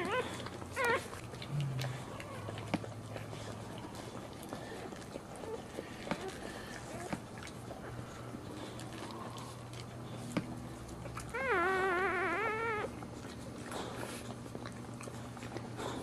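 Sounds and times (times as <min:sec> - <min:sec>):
puppy squealing: 0:00.0 - 0:01.1, 0:11.2 - 0:13.0.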